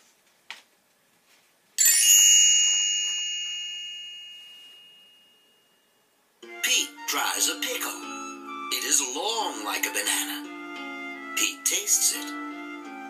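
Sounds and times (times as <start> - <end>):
bright bell chime: 1.8 - 7.0.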